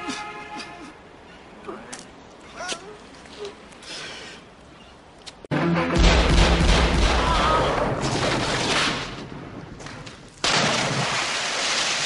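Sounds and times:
film soundtrack music: 5.5s - 7.2s
pistol shots and booms: 6.0s - 9.2s.

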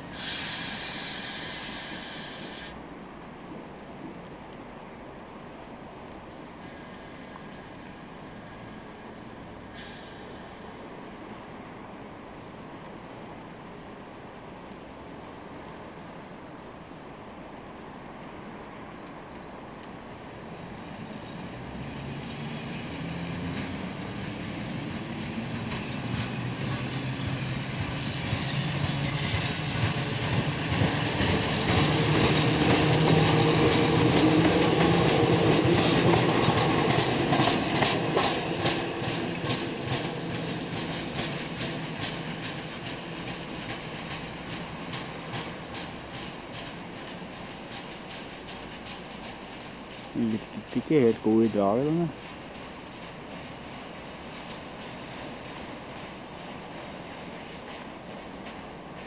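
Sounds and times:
train wheels clacking over rail joints: 21.6s - 59.0s.

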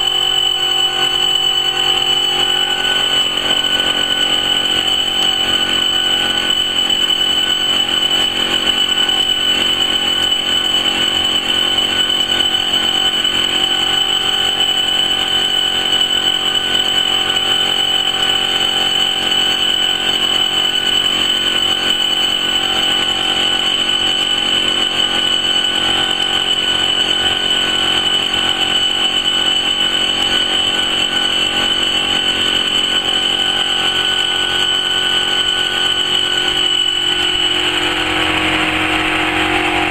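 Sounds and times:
laser cutting machine humming: 0.0s - 15.5s.

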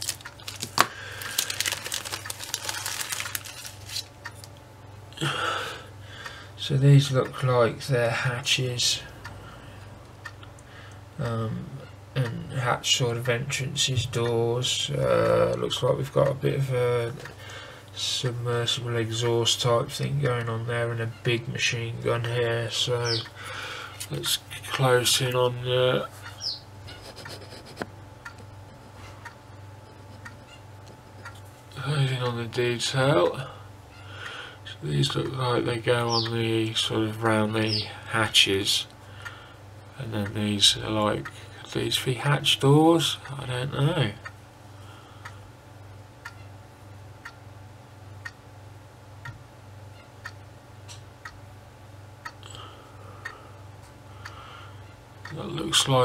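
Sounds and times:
plastic bag rustling: 0.0s - 4.1s
low steady hum: 0.0s - 56.0s
clock ticking faintly: 9.0s - 21.2s, 22.2s - 23.4s, 24.8s - 31.4s, 32.2s - 32.6s, 36.0s - 37.8s, 46.2s - 46.6s, 47.2s - 47.5s, 48.2s - 48.5s, 49.2s - 51.5s, 52.1s - 56.0s.

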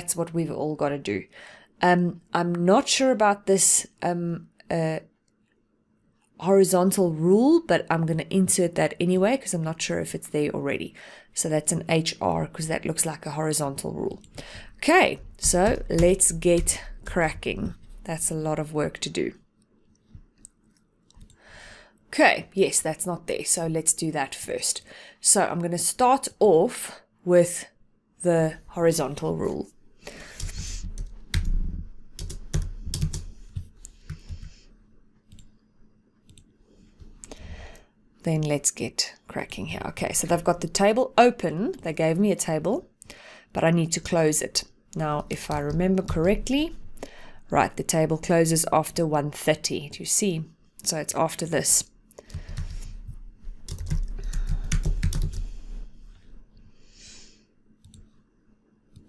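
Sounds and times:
computer keyboard keystrokes: 32.1s - 34.5s, 52.2s - 52.8s, 53.6s - 55.4s.

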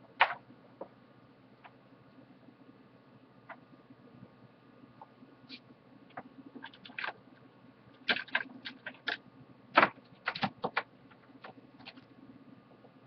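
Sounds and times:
faint steady hum: 0.0s - 13.0s
small items clicking on workbench: 9.8s - 12.1s.

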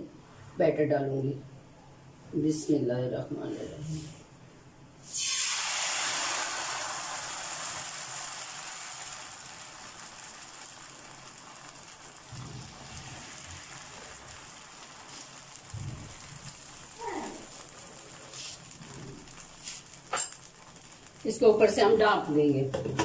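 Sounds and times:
batter sizzling in frying pan: 5.0s - 22.5s.

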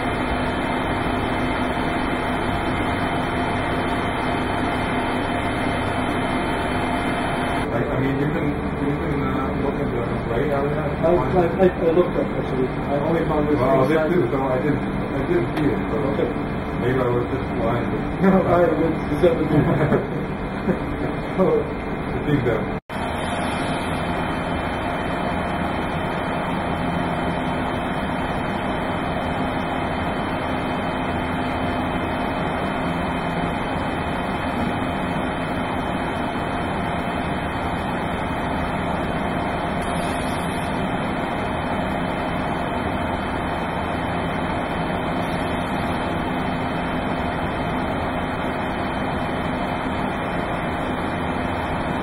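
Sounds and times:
faint equipment hum: 0.0s - 29.4s
ventilation air rushing: 0.0s - 52.0s.

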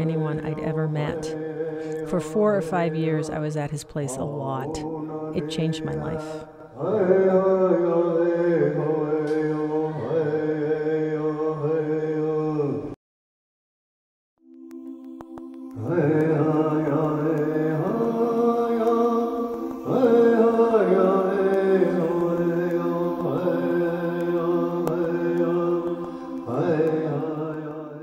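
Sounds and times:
chanted vocal line: 0.0s - 13.0s, 14.5s - 28.0s
steady held drone: 14.5s - 28.0s.

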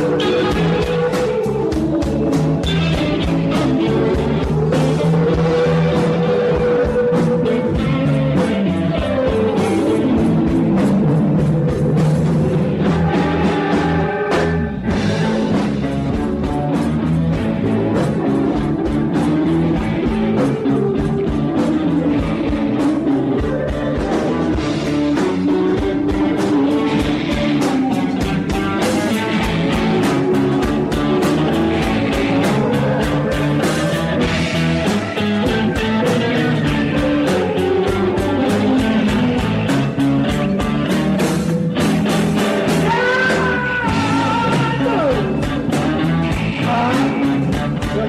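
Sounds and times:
drum kit steady beat: 0.0s - 48.0s
electric guitars: 0.0s - 48.0s.

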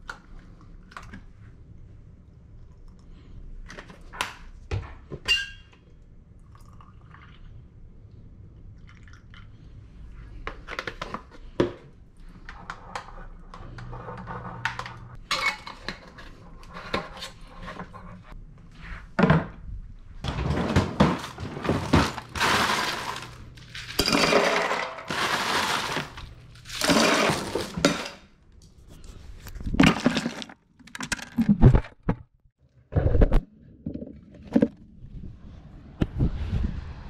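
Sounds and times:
ice cubes rattling into cooler: 20.3s - 28.2s, 29.8s - 31.6s.

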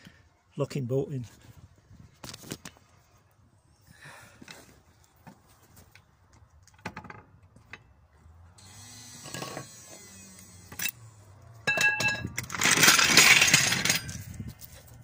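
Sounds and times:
metal rattling and scraping: 11.6s - 15.0s.

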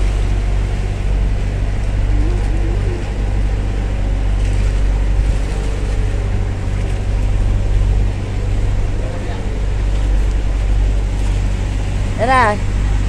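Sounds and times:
boat engine droning: 0.0s - 13.0s
wind and water rushing: 0.0s - 13.0s.

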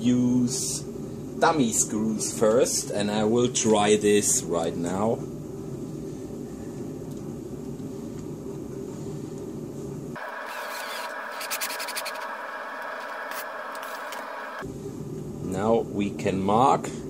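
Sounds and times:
cordless drill whirring: 10.2s - 14.6s.

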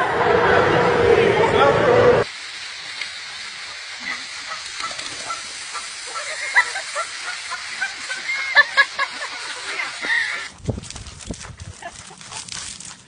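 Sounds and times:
goose honking: 4.5s - 6.4s.

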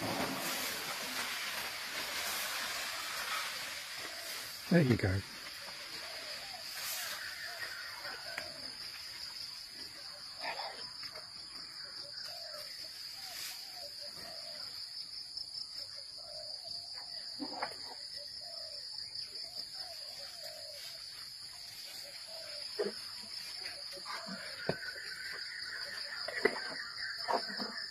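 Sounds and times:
insects droning: 0.0s - 27.9s.

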